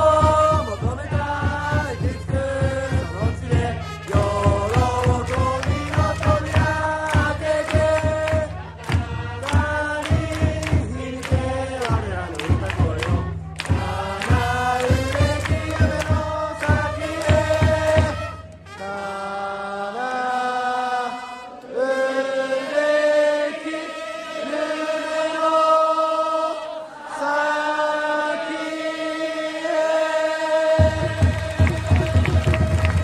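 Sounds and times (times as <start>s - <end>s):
rhythmic clapping: 0.0s - 19.0s, 30.8s - 33.0s
crowd singing a cheering song: 0.0s - 33.0s.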